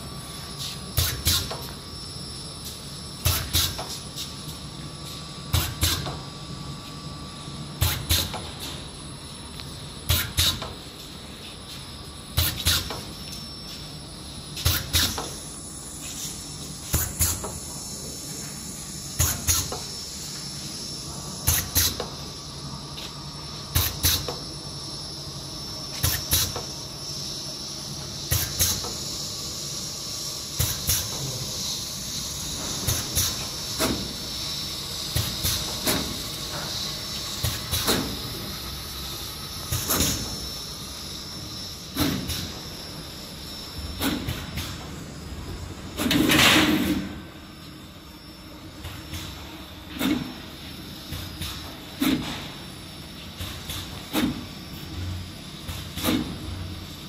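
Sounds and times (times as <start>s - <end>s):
steady machine hum and hiss: 0.0s - 57.0s
machine cutting stroke with hiss: 0.5s - 1.8s, 2.6s - 4.4s, 5.5s - 6.2s, 7.8s - 8.8s, 10.1s - 10.8s, 12.3s - 13.1s, 14.6s - 22.3s, 23.7s - 24.4s, 25.9s - 27.5s, 28.2s - 42.8s.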